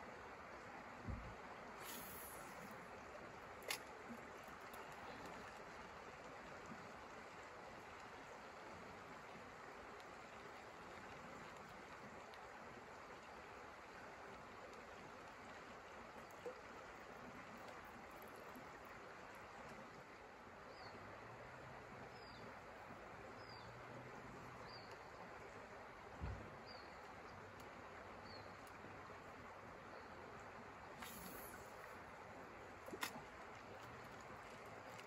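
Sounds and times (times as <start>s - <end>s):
steady soft hiss: 0.0s - 15.0s, 25.6s - 35.0s.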